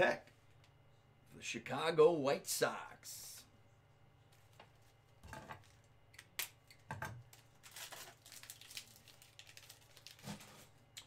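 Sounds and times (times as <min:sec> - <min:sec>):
plastic wrapper crinkling and tearing: 0:07.3 - 0:10.7.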